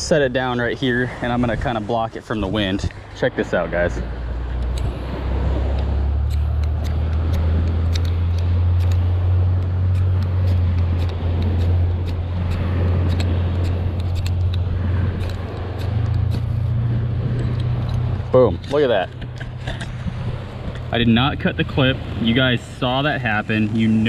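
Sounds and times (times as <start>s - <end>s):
wind buffeting microphone: 0.0s - 24.0s
striker scraping ferro rod: 5.7s - 20.2s.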